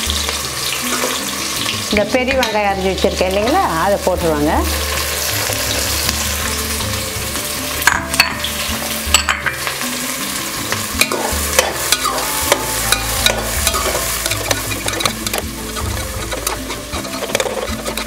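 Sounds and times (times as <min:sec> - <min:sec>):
onions sizzling in hot oil: 0:00.0 - 0:18.0
metal spoon scraping pot: 0:11.0 - 0:18.0.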